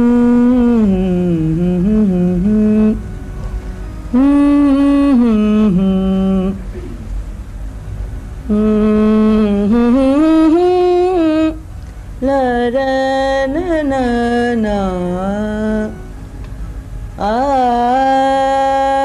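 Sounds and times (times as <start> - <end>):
woman singing unaccompanied: 0.0 - 3.1, 4.1 - 6.7, 8.5 - 11.6, 12.2 - 16.1, 17.2 - 19.0.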